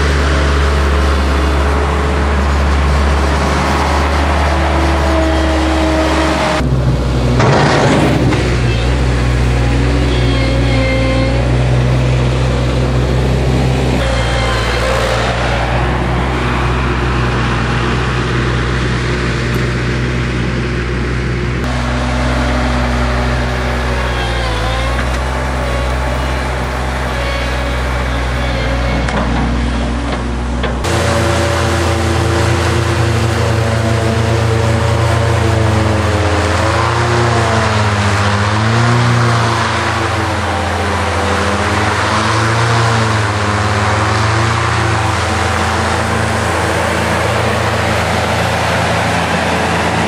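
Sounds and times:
diesel engine running under load: 0:00.0 - 0:50.0.

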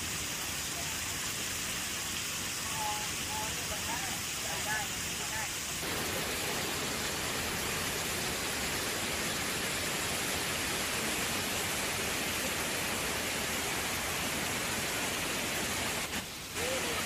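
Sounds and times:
waterfall rushing: 0:02.1 - 0:17.0.

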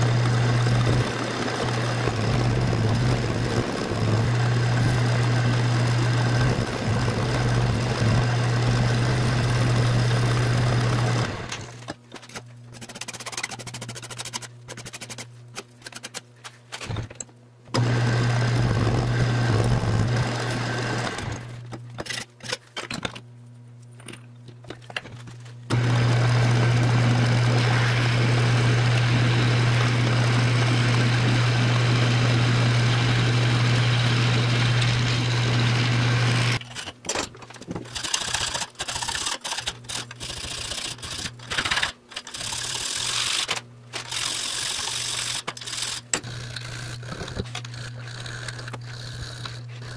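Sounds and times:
lathe motor humming: 0:00.0 - 0:11.7, 0:17.8 - 0:21.6, 0:25.7 - 0:36.6
file scraping on metal: 0:45.7 - 0:49.9.

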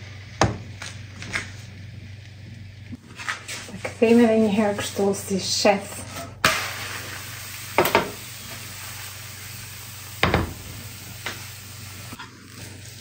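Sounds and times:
crepe sizzling in a frying pan: 0:06.4 - 0:13.0
frying pan knocking on hob: 0:07.8 - 0:08.2, 0:10.2 - 0:10.7.

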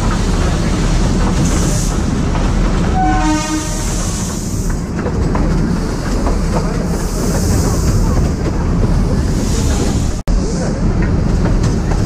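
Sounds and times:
train rumble and rail clatter: 0:00.0 - 0:12.0
short train horn blast: 0:02.9 - 0:04.0.

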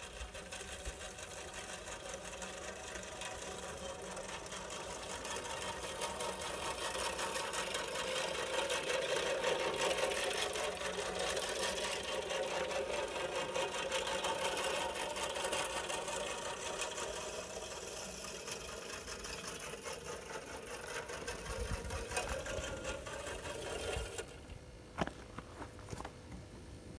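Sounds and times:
toy lawn mower whirring: 0:00.0 - 0:25.2.

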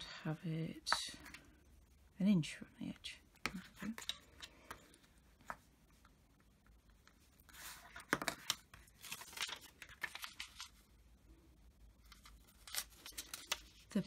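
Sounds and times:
paper rustling: 0:07.2 - 0:10.9, 0:12.0 - 0:14.0.

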